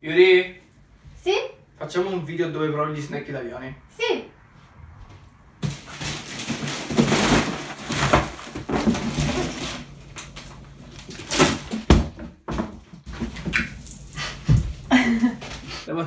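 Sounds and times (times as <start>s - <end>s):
plastic wrappers crinkling: 5.6s - 11.8s
small boxes clattering: 5.6s - 13.5s.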